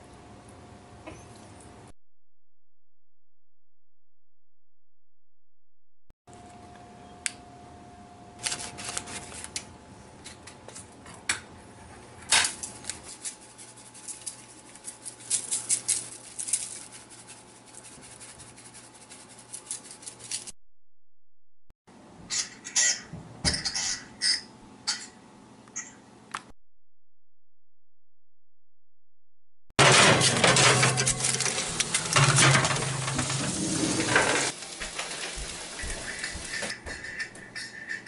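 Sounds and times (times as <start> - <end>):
seasoning packet rustling: 12.6 - 20.5, 31.0 - 32.3.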